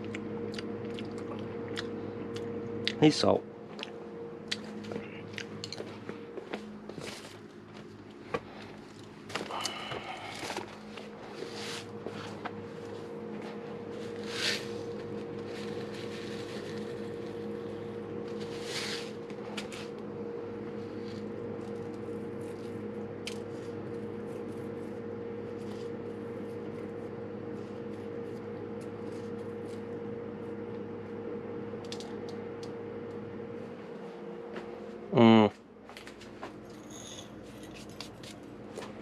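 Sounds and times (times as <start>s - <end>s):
electric motor hum: 0.0s - 39.0s
rustles and clicks of handling: 4.6s - 17.5s.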